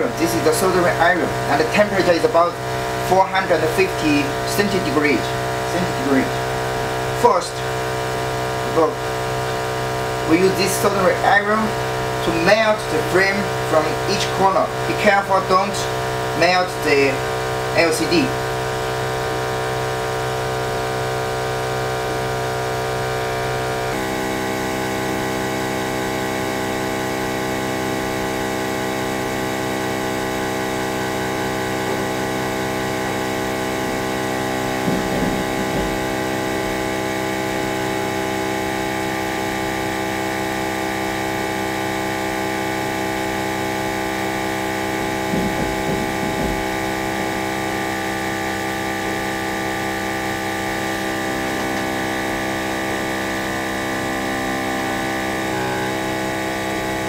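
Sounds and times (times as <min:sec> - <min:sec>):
vacuum pump electric hum: 0:00.0 - 0:57.0
low thumps: 0:33.5 - 0:38.0, 0:45.0 - 0:47.6.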